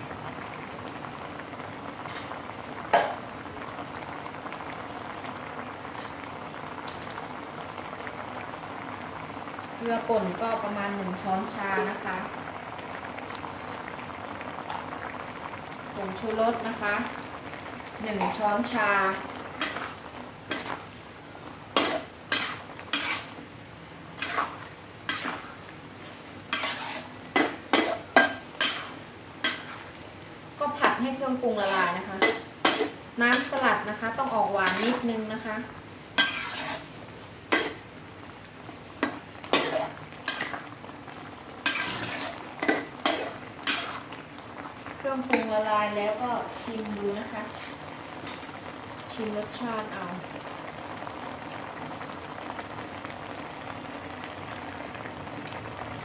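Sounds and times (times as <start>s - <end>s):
water bubbling in a wok: 0.0s - 56.0s
metal spatula scraping wok: 19.6s - 19.9s, 20.5s - 20.8s, 21.8s - 23.4s, 24.2s - 25.4s, 26.5s - 29.9s, 30.7s - 35.5s, 36.2s - 36.9s, 37.5s - 37.8s, 39.5s - 40.6s, 41.6s - 44.1s, 47.4s - 48.4s.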